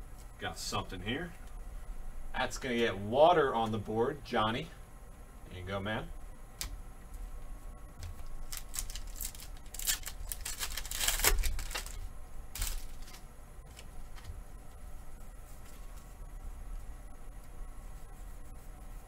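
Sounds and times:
foil wrapper crinkling and tearing: 8.2s - 14.3s.

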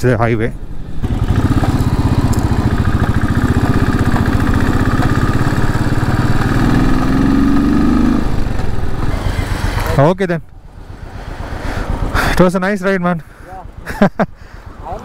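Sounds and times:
motorcycle engine pulsing: 1.0s - 10.0s.

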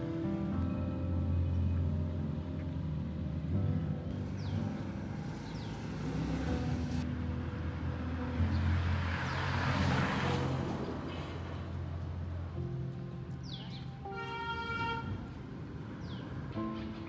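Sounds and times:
car driving past: 4.1s - 12.2s.

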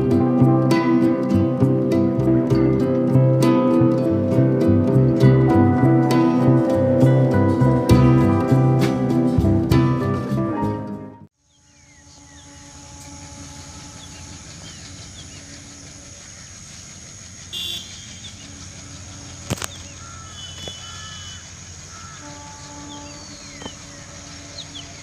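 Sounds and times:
distant diesel locomotive chugging: 0.0s - 10.6s, 11.8s - 25.0s
birds chirping: 11.4s - 25.0s.

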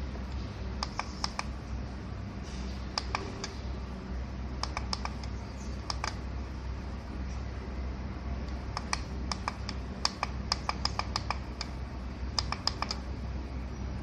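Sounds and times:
low steady hum: 0.0s - 14.0s
keypad buttons clicking: 0.8s - 1.5s, 3.0s - 3.6s, 4.6s - 6.2s, 8.7s - 11.8s, 12.4s - 13.0s.

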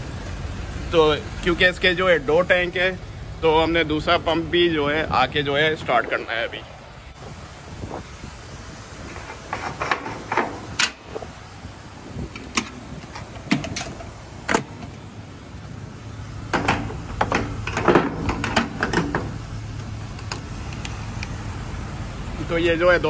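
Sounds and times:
metallic clicks and clanks of fuel nozzle: 9.2s - 11.2s, 12.2s - 15.1s, 16.5s - 21.4s.

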